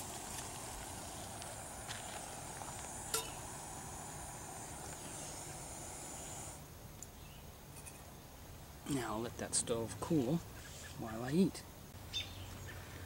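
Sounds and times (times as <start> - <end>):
gas stove hissing: 0.0 - 6.7
metal mug clink: 3.1 - 3.4.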